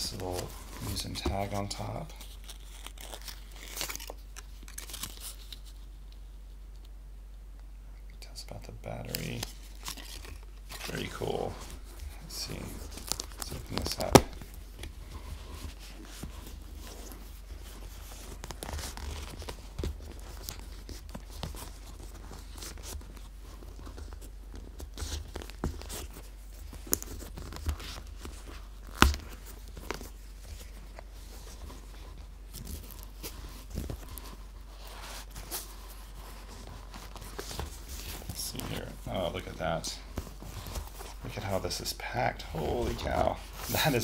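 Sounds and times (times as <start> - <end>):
leather case rustling: 9.6 - 39.4, 40.0 - 41.4.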